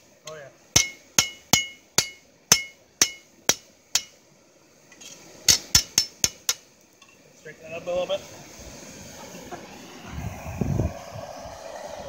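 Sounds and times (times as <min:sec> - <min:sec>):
hammer striking steel on anvil: 0:00.2 - 0:04.2, 0:05.5 - 0:06.6.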